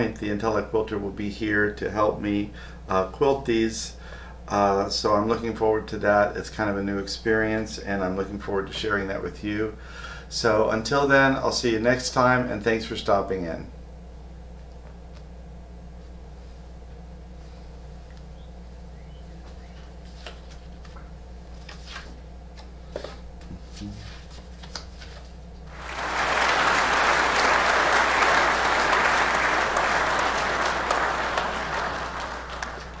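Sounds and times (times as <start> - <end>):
steady low hum: 0.0 - 33.0
crowd applause: 25.7 - 33.0.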